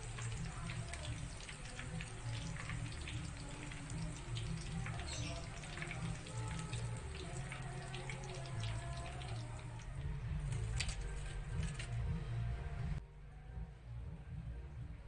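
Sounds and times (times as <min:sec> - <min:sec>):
hot oil sizzling and crackling: 0:00.0 - 0:11.9
background music: 0:00.0 - 0:15.0.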